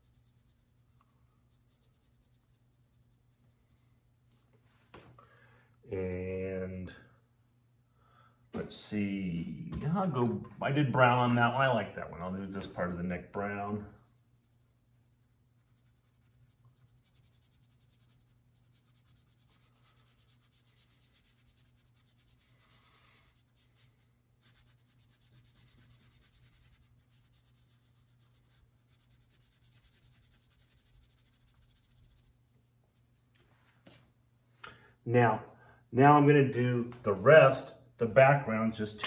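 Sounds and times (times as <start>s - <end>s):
low steady hum: 0.0s - 39.0s
crayon scratching on paper: 13.8s - 32.4s.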